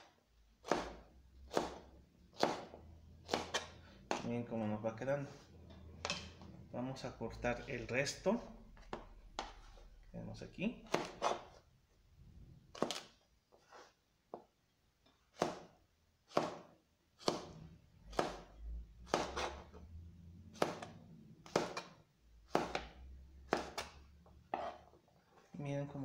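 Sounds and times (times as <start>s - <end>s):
knife chopping on plastic board: 0.6s - 4.3s, 8.8s - 9.8s, 10.9s - 11.5s, 12.7s - 13.2s, 15.3s - 18.5s, 19.1s - 19.8s, 20.5s - 24.9s.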